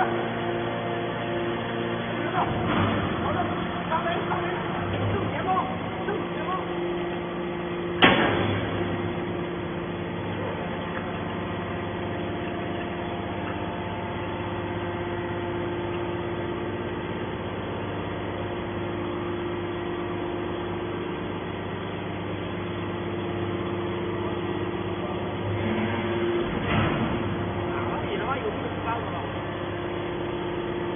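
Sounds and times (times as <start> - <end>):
hydraulic power unit humming: 0.0 - 30.9
loud metal clank: 2.4 - 3.3, 8.0 - 9.0.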